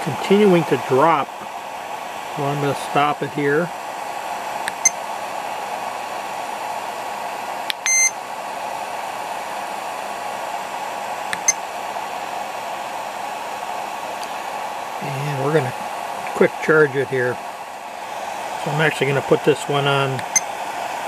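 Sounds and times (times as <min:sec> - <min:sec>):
cooling fan running: 0:00.0 - 0:21.0
short electronic beep: 0:07.8 - 0:08.1.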